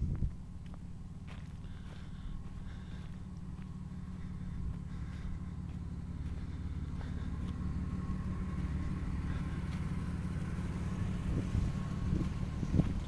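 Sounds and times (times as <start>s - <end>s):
pickup truck engine idling: 0.0s - 13.0s.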